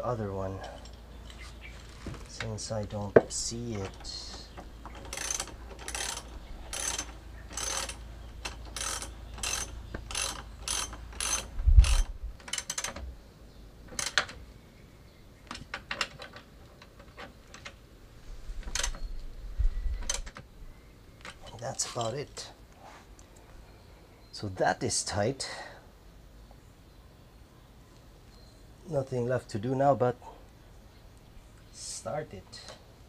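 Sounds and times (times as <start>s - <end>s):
socket ratchet clicking: 4.9s - 13.0s, 13.9s - 14.4s.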